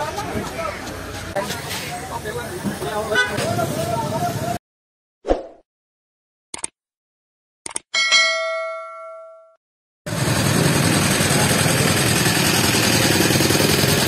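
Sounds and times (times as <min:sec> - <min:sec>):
street noise with vehicle engines: 0:00.0 - 0:04.6, 0:10.1 - 0:14.0
click sound effect: 0:07.6 - 0:07.9
notification bell ding: 0:08.0 - 0:09.6.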